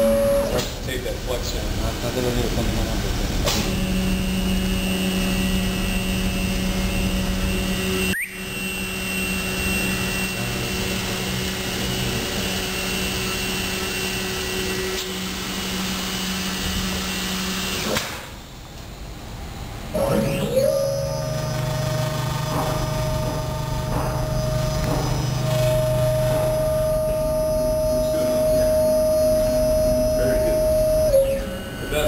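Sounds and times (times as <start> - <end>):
laminator machine whirring: 19.4 - 32.0.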